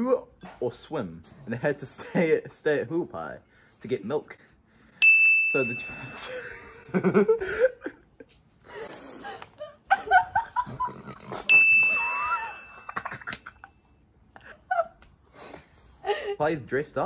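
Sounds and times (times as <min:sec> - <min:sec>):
bright single-tone ding: 0:05.0 - 0:06.3, 0:11.5 - 0:13.0
people laughing: 0:06.2 - 0:08.4, 0:09.4 - 0:11.1.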